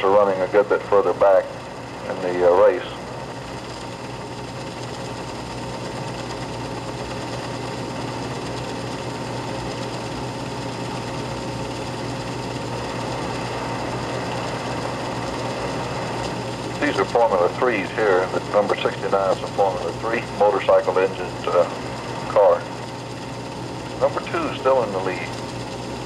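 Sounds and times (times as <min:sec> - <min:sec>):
film projector whirring: 0:00.0 - 0:26.0
low hum: 0:00.0 - 0:26.0.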